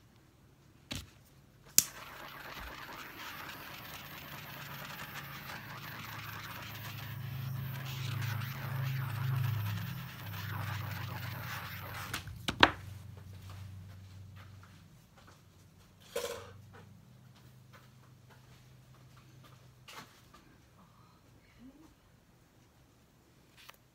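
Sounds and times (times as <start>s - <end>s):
low hum: 1.8s - 12.2s.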